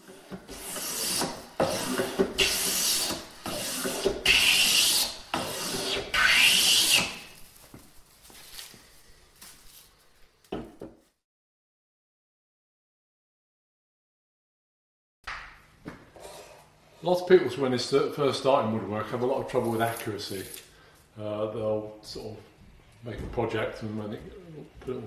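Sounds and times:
hand plane cutting wood: 0.0 - 7.3.

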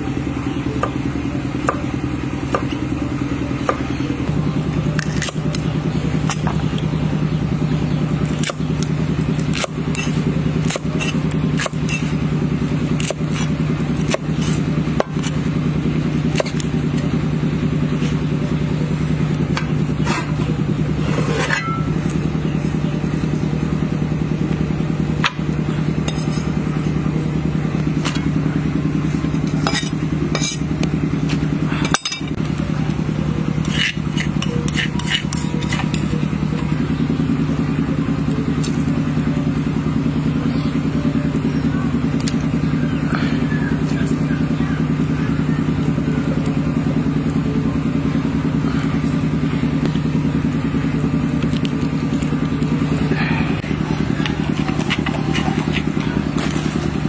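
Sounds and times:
motor drone: 0.0 - 57.0
cleaver chopping on wooden board: 2.5 - 2.8, 5.0 - 5.6, 9.4 - 12.1, 13.0 - 15.4, 16.3 - 16.7.

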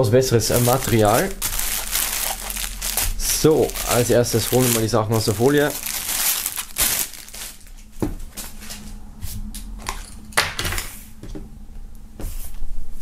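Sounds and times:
packaging rustling: 0.4 - 7.9.

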